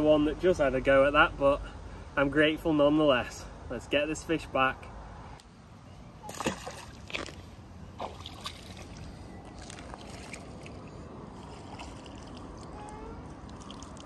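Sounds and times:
water splashing: 6.2s - 14.0s.

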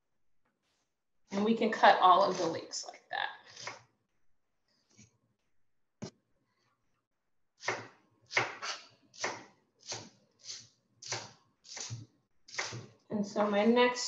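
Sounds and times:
knife chopping on cutting board: 7.6s - 12.9s.

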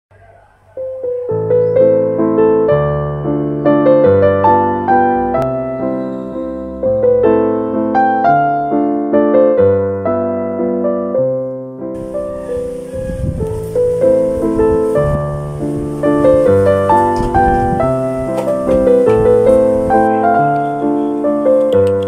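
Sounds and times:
piano music: 0.6s - 22.0s
faint hiss: 12.0s - 21.9s.

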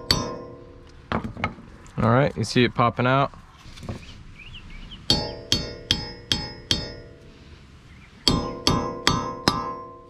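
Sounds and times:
hammer striking chisel on metal: 0.0s - 1.3s, 5.1s - 7.2s, 8.2s - 10.0s.

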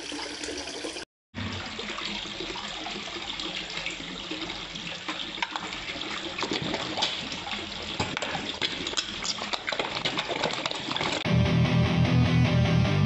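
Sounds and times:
water washing: 0.0s - 11.2s
fish splashing and slurping: 1.4s - 11.2s.

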